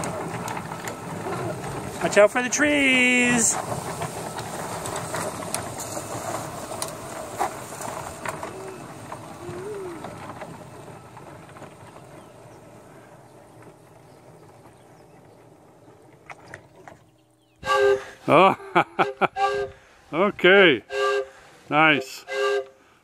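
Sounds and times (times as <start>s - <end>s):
track clicks: 0.0s - 17.2s
miniature train rolling on track: 0.0s - 22.8s.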